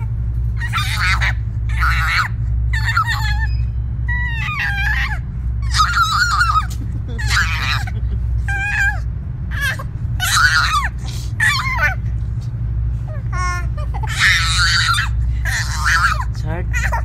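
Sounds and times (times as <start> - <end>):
baby squealing: 0.0 - 12.1, 13.0 - 17.0.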